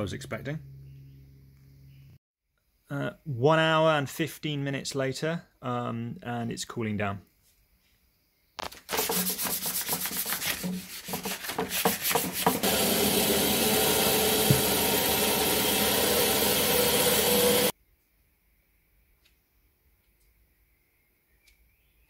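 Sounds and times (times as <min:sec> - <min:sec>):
hand sanding plaster: 0:08.9 - 0:17.7
bandsaw cutting plaster: 0:09.0 - 0:17.7.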